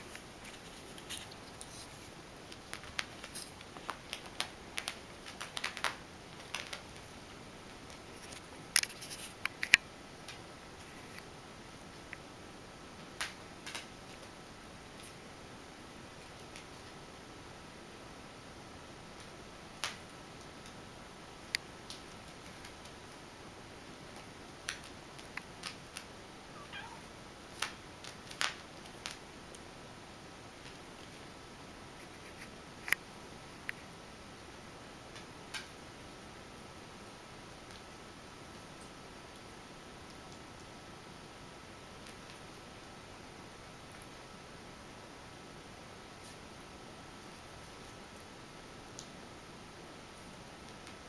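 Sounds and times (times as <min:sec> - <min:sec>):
kitten claws scratching carpet: 0:00.0 - 0:06.8
kitten mewing: 0:26.6 - 0:27.1.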